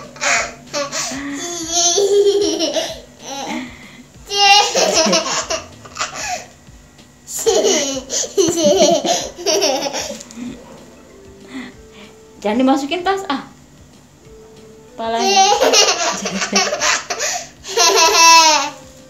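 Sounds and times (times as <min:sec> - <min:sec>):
young child laughing: 0:00.0 - 0:03.7, 0:04.3 - 0:06.5, 0:07.3 - 0:10.5, 0:15.2 - 0:18.8.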